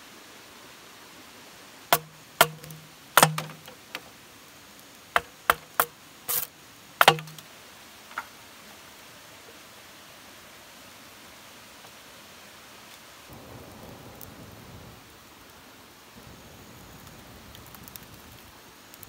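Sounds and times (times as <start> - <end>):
machete chopping bamboo: 1.9 - 4.0, 5.2 - 7.4.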